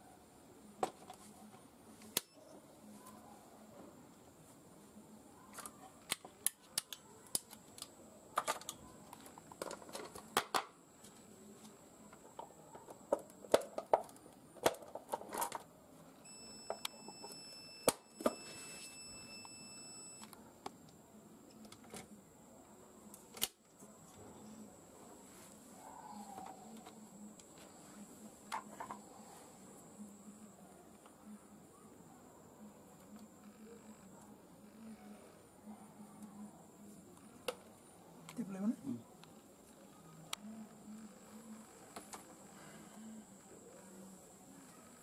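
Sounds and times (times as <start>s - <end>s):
faint steady high tone: 0.0s - 9.4s, 16.2s - 38.9s.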